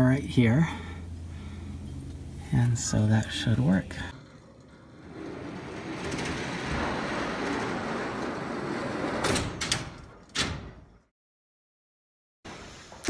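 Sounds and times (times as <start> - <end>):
trolley rolling on steel track: 1.8 - 10.2.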